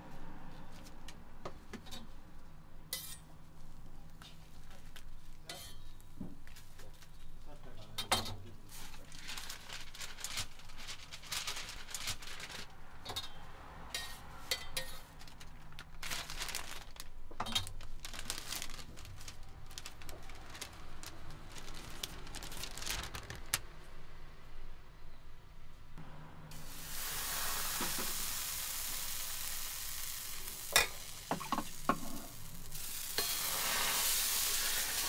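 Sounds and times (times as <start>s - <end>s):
paper wrapper rustling and crinkling: 8.7s - 12.7s, 15.0s - 23.7s.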